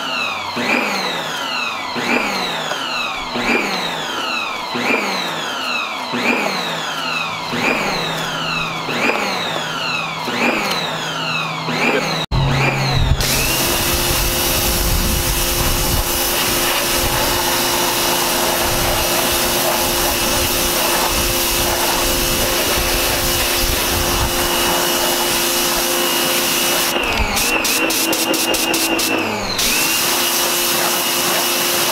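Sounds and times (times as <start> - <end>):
electric pressure washer running: 0.0 - 31.9
water spray hissing: 13.2 - 31.9.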